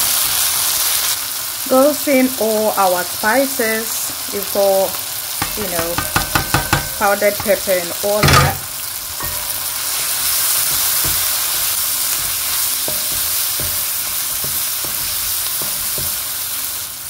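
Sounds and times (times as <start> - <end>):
food sizzling in frying pan: 0.0 - 17.0
wooden spatula knocking pan: 5.4 - 9.8, 10.4 - 16.5.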